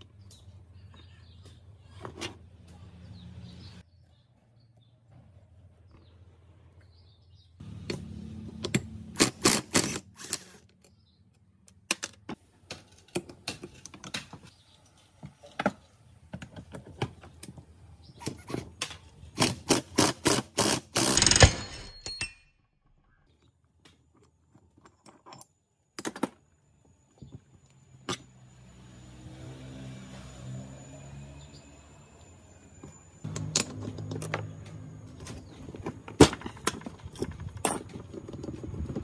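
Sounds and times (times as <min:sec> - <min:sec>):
metal tools clicking and knocking: 0:21.4 - 0:22.4, 0:33.3 - 0:39.0.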